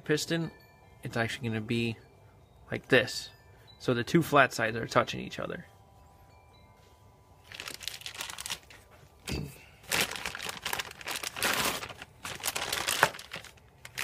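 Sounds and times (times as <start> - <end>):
plastic bag crinkling: 7.4 - 14.0.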